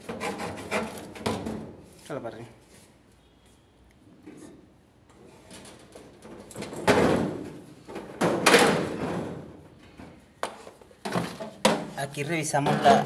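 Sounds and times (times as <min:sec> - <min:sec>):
plastic duct scraping metal cabinet: 0:00.0 - 0:01.7.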